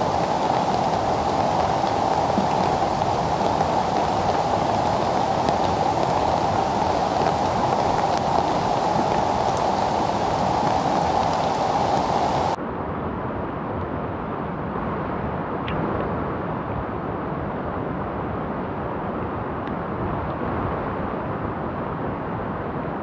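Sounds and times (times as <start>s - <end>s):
rain on a tarp: 0.0s - 12.6s.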